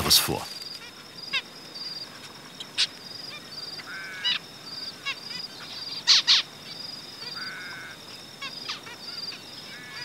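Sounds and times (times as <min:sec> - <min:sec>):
finches giving nasal calls: 0:02.8 - 0:04.4, 0:05.0 - 0:10.0.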